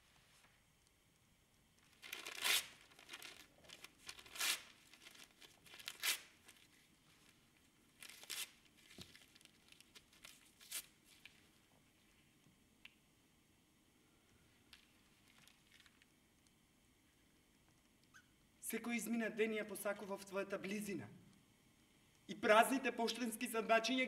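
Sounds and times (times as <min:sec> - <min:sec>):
paper rustling: 0:01.9 - 0:07.4, 0:08.0 - 0:11.6
paper tearing: 0:02.0 - 0:06.6, 0:08.0 - 0:08.6.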